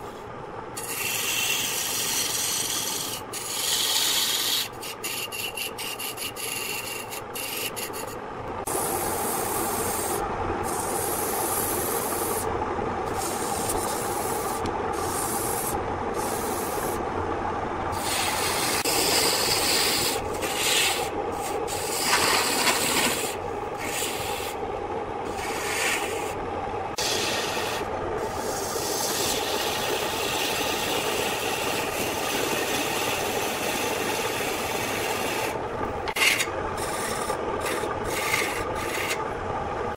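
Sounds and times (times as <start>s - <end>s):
chisel scraping wood on lathe: 0.8s - 8.2s, 18.0s - 24.6s, 25.3s - 26.4s, 27.0s - 39.2s.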